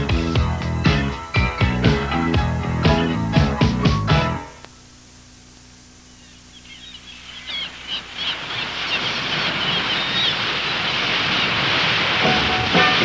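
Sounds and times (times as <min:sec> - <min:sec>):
seagulls crying: 0:06.2 - 0:11.7
ocean surf: 0:08.4 - 0:13.0.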